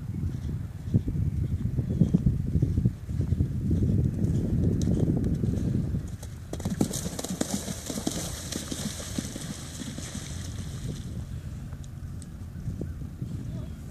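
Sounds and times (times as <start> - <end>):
horse hoofbeats cantering: 2.0 - 11.0
horse splashing through water: 6.6 - 11.2.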